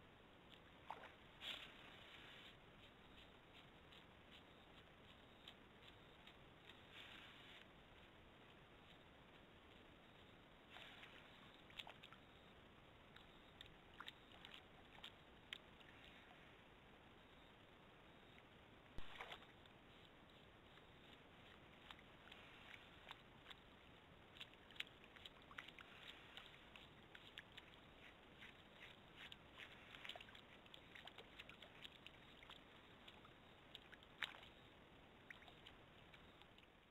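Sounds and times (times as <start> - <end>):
steady low hiss: 0.0 - 36.9
small water splashes: 0.8 - 2.3, 10.7 - 12.2, 19.0 - 19.7, 21.4 - 36.8
steady hiss: 1.3 - 11.4
soft ticks: 2.8 - 7.0, 7.6 - 12.5, 13.1 - 16.4, 18.3 - 36.8
sharp splash: 19.0 - 19.4, 28.8 - 32.5.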